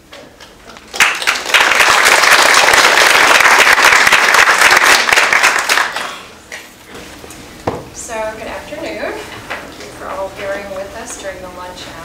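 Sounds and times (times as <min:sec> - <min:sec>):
audience applauding: 0:00.8 - 0:06.3.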